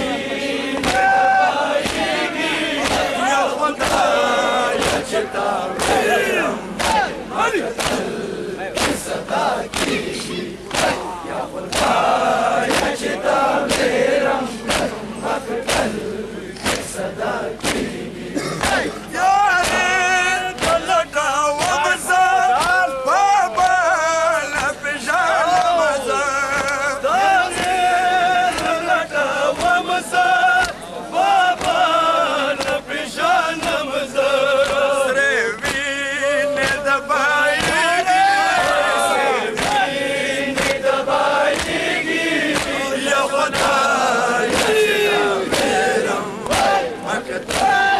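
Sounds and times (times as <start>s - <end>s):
crowd chanting: 0.0s - 47.9s
men singing a lament: 0.0s - 47.9s.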